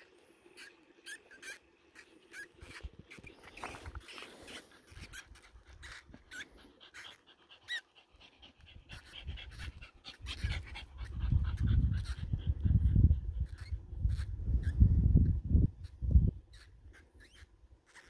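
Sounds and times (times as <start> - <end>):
dog panting: 4.0 - 14.2
faint high-pitched squeaks: 16.5 - 18.0.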